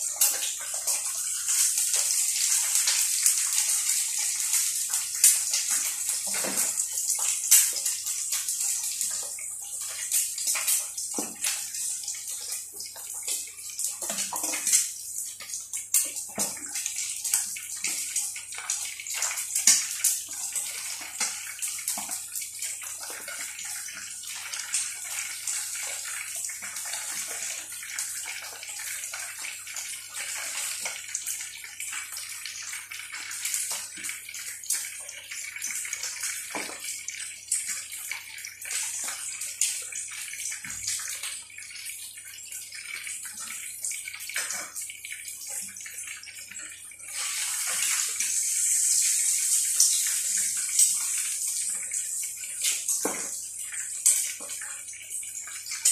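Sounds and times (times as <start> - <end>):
chicken deep-frying in oil: 0.0 - 55.9
egg frying in a pan: 0.0 - 55.9.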